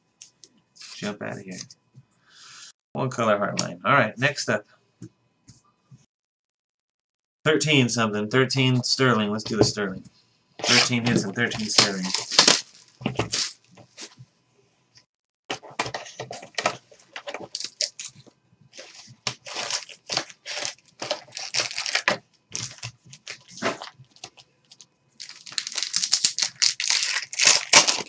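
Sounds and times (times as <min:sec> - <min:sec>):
plastic shrink wrap crinkling: 0:11.5 - 0:13.7, 0:17.1 - 0:28.0
card pack wrapper tearing: 0:11.6 - 0:13.6, 0:17.4 - 0:18.2, 0:18.8 - 0:28.0.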